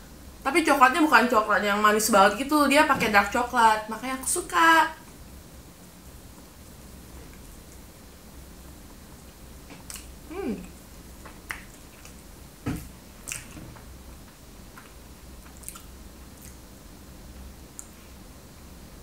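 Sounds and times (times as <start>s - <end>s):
low steady hum: 0.0s - 19.0s
wet mouth clicks and smacks: 9.7s - 10.1s, 13.2s - 13.6s, 14.8s - 16.6s
person biting and chewing: 14.8s - 16.6s.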